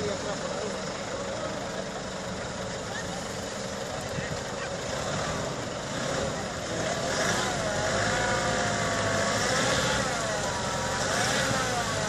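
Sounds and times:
pickup engine revving: 4.8s - 12.0s.

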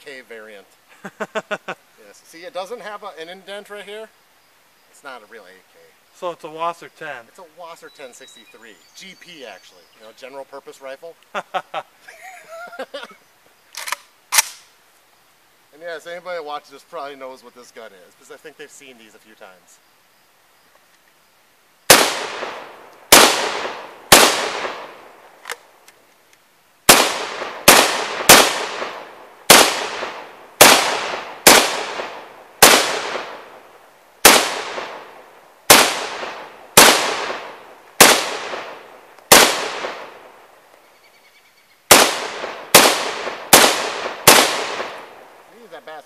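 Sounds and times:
rifle shots with echo: 21.9s - 25.1s, 26.9s - 33.6s, 34.2s - 40.3s, 41.9s - 45.3s.

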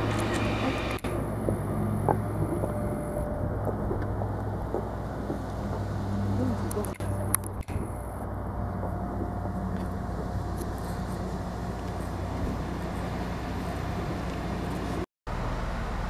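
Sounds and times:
railcar machinery humming: 0.0s - 16.0s.

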